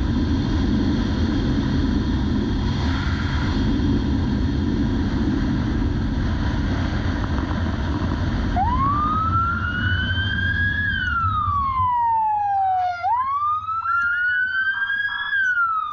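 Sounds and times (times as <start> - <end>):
motorcycle engine and wind rush: 0.0 - 15.9
police siren wailing: 8.6 - 15.9.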